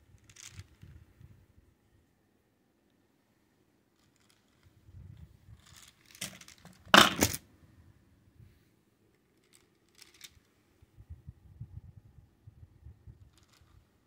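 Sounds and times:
toy keys rattling: 5.6 - 7.4, 9.2 - 10.5.

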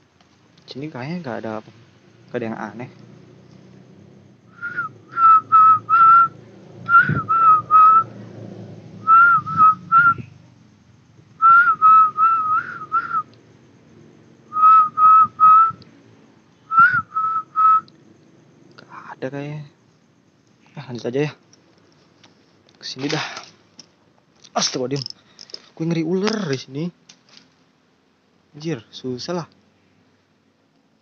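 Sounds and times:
high whistle-like call: 4.5 - 8.1, 9.0 - 10.4, 11.4 - 13.3, 14.5 - 15.8, 16.7 - 17.9.

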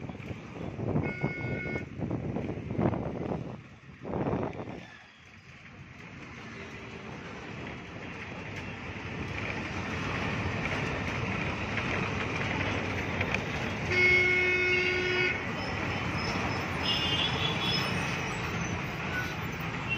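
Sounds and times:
road traffic noise: 0.0 - 19.9
vehicle horn held tone: 1.0 - 1.9, 13.9 - 15.4.

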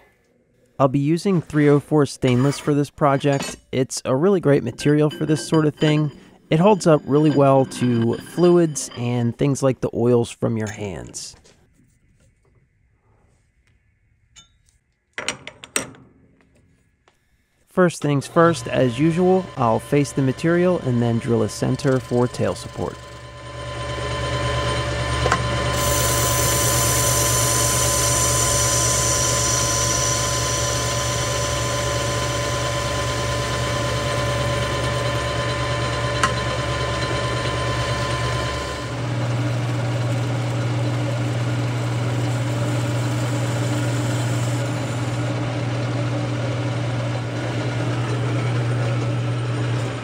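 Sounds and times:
metal lathe running: 4.5 - 9.4, 18.0 - 50.0
faint hiss of metal cutting: 25.8 - 30.9.

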